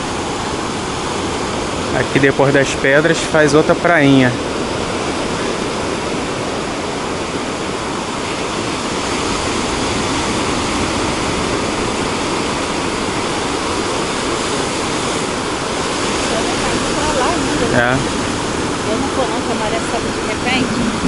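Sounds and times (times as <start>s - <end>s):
ocean waves breaking: 0.0s - 21.0s.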